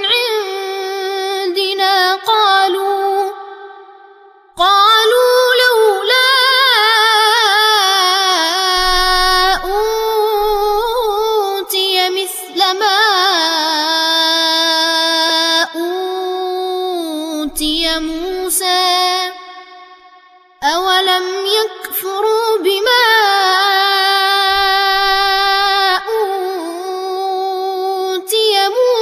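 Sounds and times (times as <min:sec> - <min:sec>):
boy chanting recitation: 0:00.0 - 0:03.6, 0:04.6 - 0:19.7, 0:20.6 - 0:29.0.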